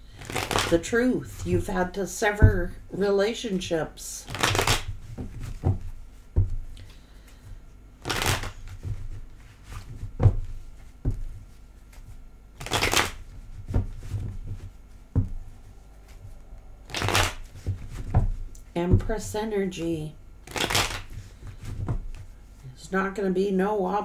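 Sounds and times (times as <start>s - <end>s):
cards riffling: 0.1s - 0.7s, 4.3s - 5.0s, 8.0s - 8.7s, 12.6s - 13.3s, 16.8s - 17.8s, 20.4s - 21.6s
cards tapping and clicking: 0.2s - 0.7s, 4.3s - 5.9s, 8.0s - 8.8s, 12.6s - 13.9s, 16.9s - 17.8s, 20.5s - 22.2s.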